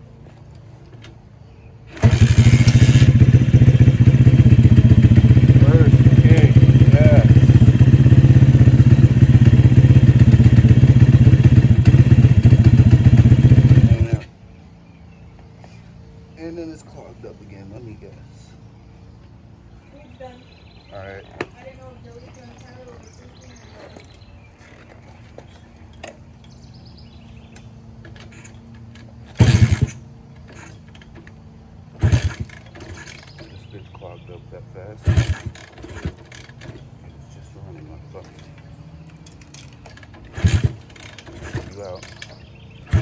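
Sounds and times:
small engine firing briefly: 1.9 - 3.2
motorbike engine running steadily: 1.9 - 14.2, 40.2 - 43.0.

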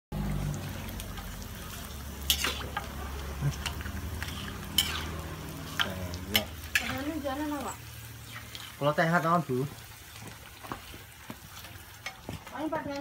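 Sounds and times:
crackers frying in hot oil: 0.1 - 13.0
metal spatula scraping a wok: 0.8 - 9.4.

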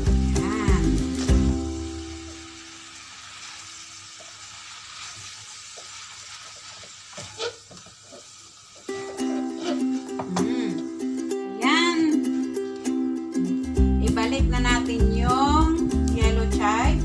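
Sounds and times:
ukulele music: 0.0 - 2.7, 8.9 - 17.0
food sizzling in a wok: 0.0 - 11.8, 14.2 - 17.0.

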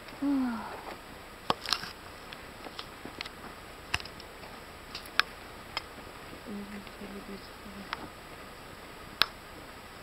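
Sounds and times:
faint hiss: 0.0 - 10.0
person sighing: 0.2 - 0.9
clicks and taps on rocky trail: 0.8 - 7.0.

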